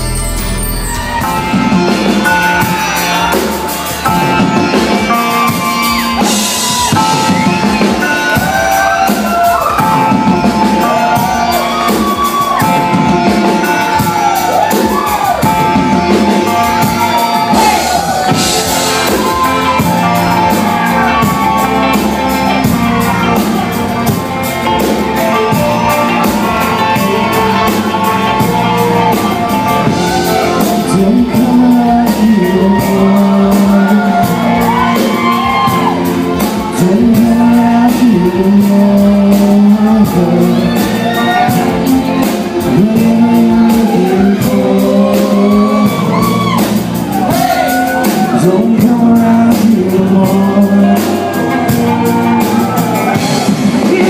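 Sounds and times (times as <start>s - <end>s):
drum kit beat: 0.0s - 54.0s
electric guitars: 0.0s - 54.0s
person singing: 0.0s - 54.0s.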